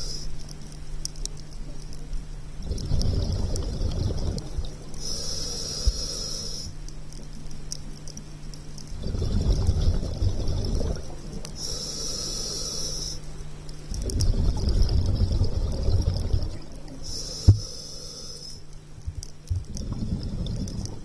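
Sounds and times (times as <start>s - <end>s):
regulator inhalation hiss: 0.0s - 0.4s, 5.0s - 6.8s, 11.5s - 13.4s, 17.0s - 18.7s
exhaled air bubbling underwater: 1.6s - 7.1s, 8.7s - 21.0s.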